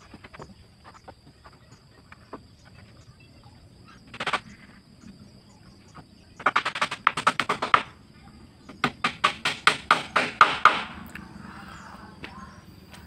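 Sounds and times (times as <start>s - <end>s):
hammer tapping on wood: 8.8s - 10.9s.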